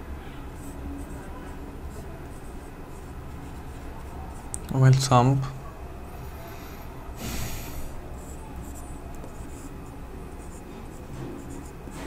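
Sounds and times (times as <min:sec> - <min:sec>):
marker squeaking on whiteboard: 0:00.4 - 0:04.6, 0:08.2 - 0:12.0
short breath: 0:06.3 - 0:08.0.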